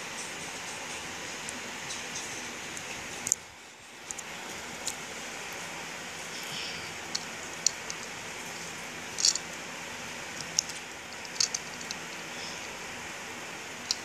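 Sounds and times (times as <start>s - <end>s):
steady hiss: 0.0s - 14.0s
plastic bricks clicking: 9.2s - 9.5s, 10.4s - 12.2s.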